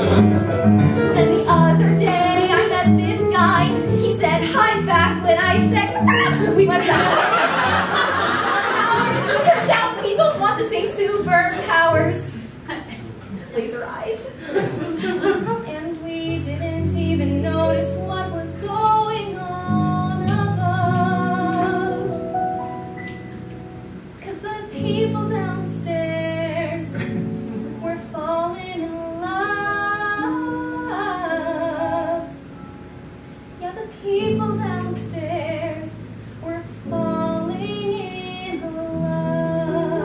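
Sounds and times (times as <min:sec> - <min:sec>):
woman singing with vibrato: 0:01.2 - 0:07.3, 0:08.8 - 0:12.4, 0:15.4 - 0:22.2, 0:24.2 - 0:27.0, 0:27.8 - 0:32.4, 0:33.6 - 0:40.0.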